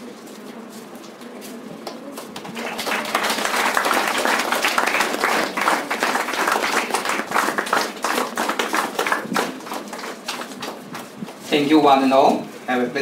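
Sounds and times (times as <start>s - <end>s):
audience applauding: 2.1s - 11.2s.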